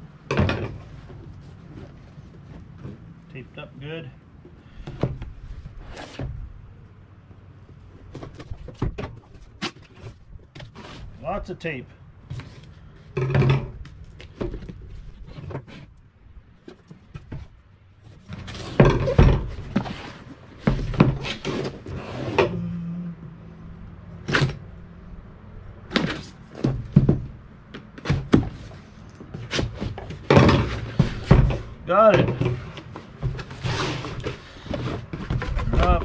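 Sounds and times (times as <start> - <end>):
cardboard scraping and rustling: 4.8 - 6.5, 8.0 - 11.2, 12.2 - 15.9, 16.6 - 22.6, 25.9 - 27.3, 27.9 - 36.0.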